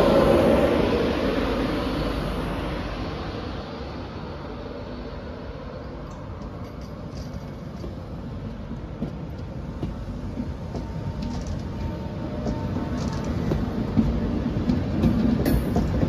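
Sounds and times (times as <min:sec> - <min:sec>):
train coaches rumbling past: 0:00.0 - 0:16.0
wheels clicking over rail joints: 0:05.8 - 0:16.0.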